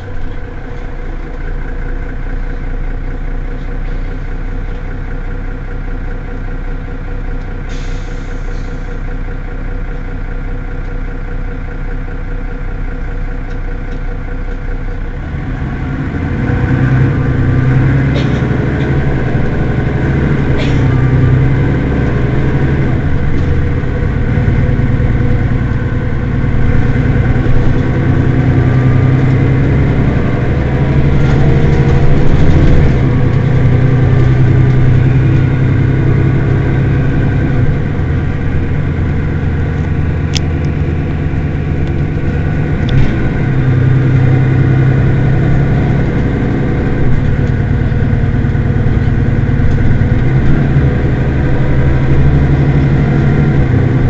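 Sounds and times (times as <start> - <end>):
bus engine idling: 0.0 - 54.0.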